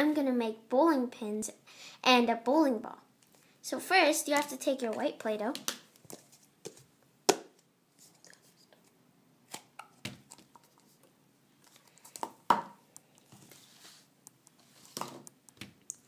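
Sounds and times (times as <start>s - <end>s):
plastic tubs knocking and clicking: 12.1s - 12.8s
soft rustling: 13.1s - 15.2s.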